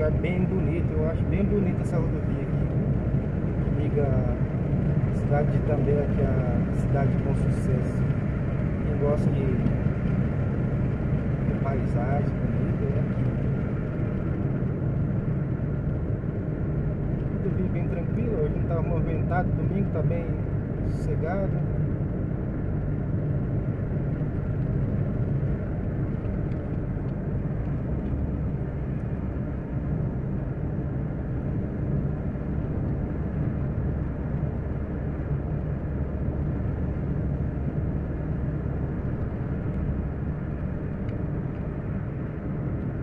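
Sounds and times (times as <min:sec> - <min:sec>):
car engine and tyre rumble: 0:00.0 - 0:43.0.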